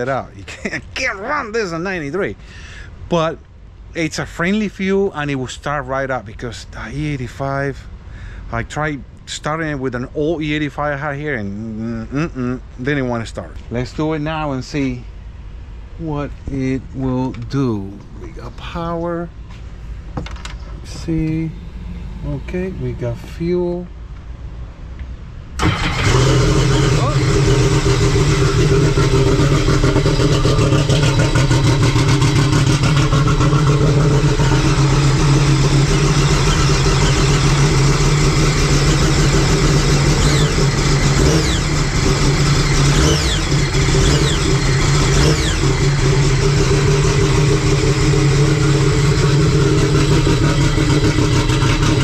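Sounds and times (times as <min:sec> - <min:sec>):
jet ski engine running: 0:25.6 - 0:52.0.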